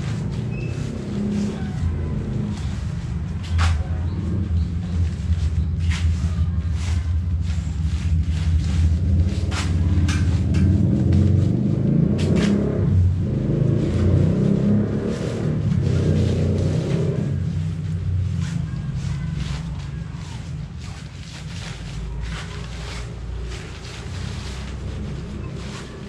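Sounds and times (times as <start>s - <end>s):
low rumble: 0.0s - 26.0s.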